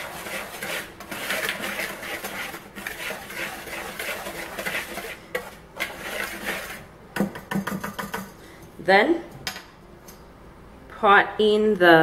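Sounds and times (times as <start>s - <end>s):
whisk swishing in plastic bowl: 0.0s - 6.9s.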